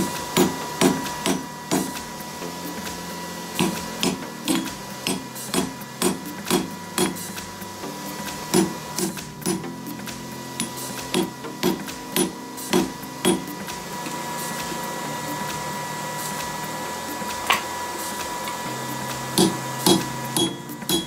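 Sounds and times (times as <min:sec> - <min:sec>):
hammer striking metal on anvil: 0:00.0 - 0:02.1, 0:03.6 - 0:07.4, 0:08.5 - 0:09.7, 0:10.6 - 0:13.6, 0:17.4 - 0:17.7, 0:19.3 - 0:21.0.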